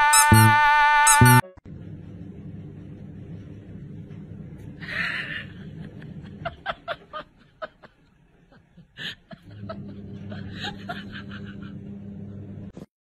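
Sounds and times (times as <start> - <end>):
person snickering: 4.8 - 11.9.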